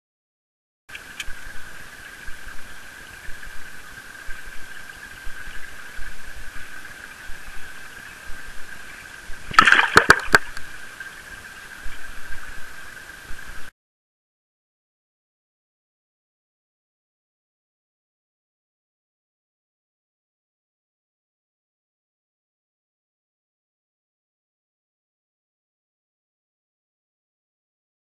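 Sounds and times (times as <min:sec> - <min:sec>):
small ticks: 0:00.9 - 0:09.1
aquarium water hiss: 0:00.9 - 0:13.7.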